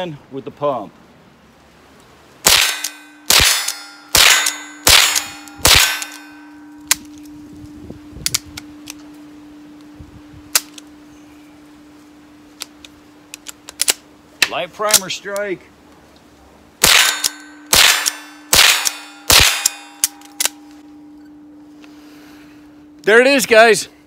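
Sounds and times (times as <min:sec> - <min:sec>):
rifle shots: 0:02.4 - 0:06.3, 0:16.8 - 0:20.6.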